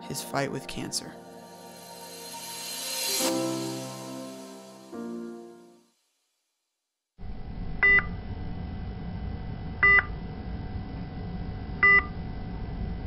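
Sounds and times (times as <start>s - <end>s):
steady low hum: 7.2s - 13.0s.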